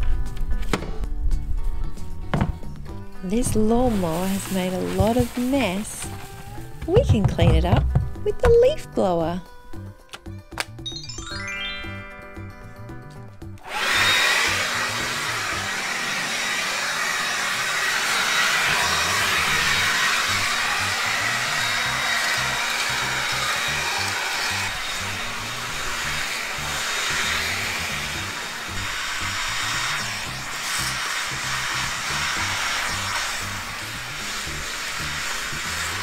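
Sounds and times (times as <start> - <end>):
background music: 0.0 - 15.6
leaf blower rushing air: 2.3 - 8.2, 13.4 - 36.0.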